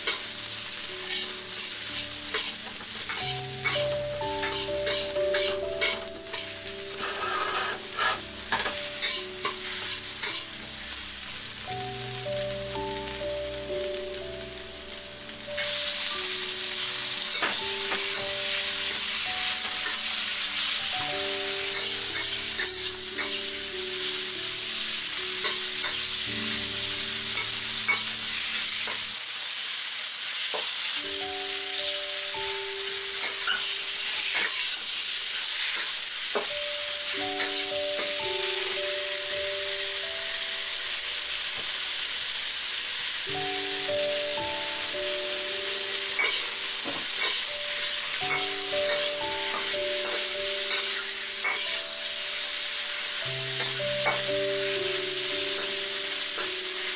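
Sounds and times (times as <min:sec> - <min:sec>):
chicken sizzling in hot oil: 0:00.0 - 0:56.9
metal spatula scraping wok: 0:01.0 - 0:03.8, 0:04.4 - 0:10.5, 0:21.7 - 0:23.5, 0:33.2 - 0:35.0, 0:46.2 - 0:51.8.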